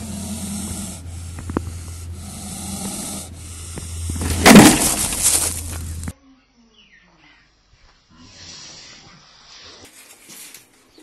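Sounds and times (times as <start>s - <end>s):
snake hissing: 0.0s - 5.2s.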